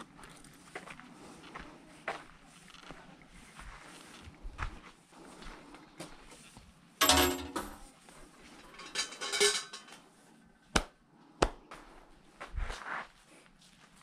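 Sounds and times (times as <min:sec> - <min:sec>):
metallic clinking and ringing: 0:07.0 - 0:07.9, 0:08.6 - 0:10.0
sharp hand claps: 0:10.7 - 0:11.6.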